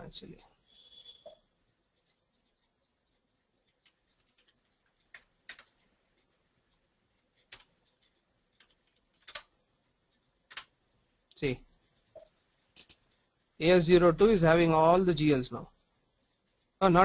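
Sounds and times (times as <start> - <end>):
keyboard keystrokes: 7.4 - 9.5.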